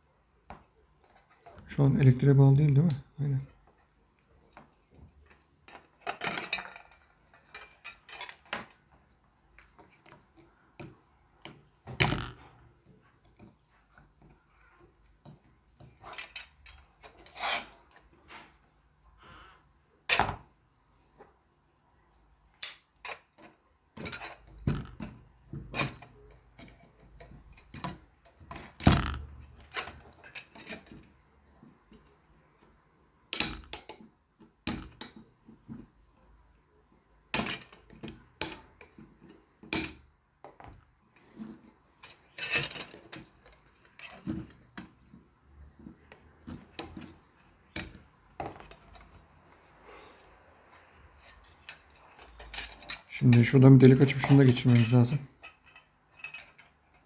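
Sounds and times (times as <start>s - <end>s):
small metal parts clattering: 5.2s - 8.8s, 16.0s - 17.8s, 23.0s - 31.2s, 42.0s - 44.7s, 51.3s - 57.0s.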